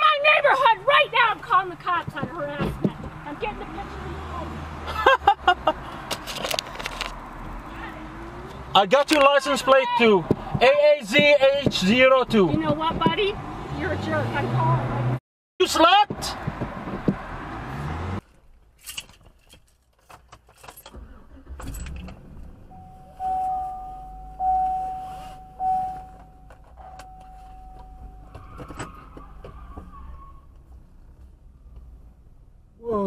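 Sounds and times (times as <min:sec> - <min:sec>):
keys jingling: 0:18.8 - 0:21.0
steady single tone: 0:22.7 - 0:28.4.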